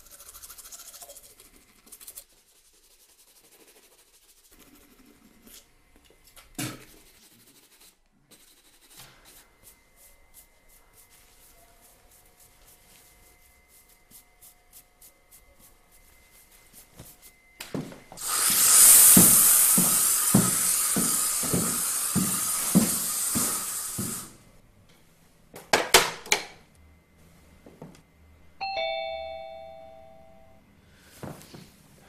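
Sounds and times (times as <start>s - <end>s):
loud steady hiss: 18.2s - 24.5s
two-tone doorbell chime: 28.6s - 30.6s.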